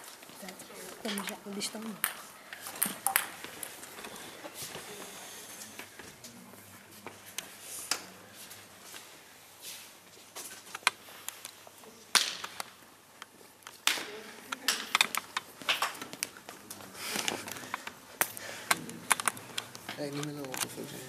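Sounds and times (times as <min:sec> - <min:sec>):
table tennis balls clicking: 0:00.9 - 0:04.2, 0:10.7 - 0:16.6, 0:17.3 - 0:20.8.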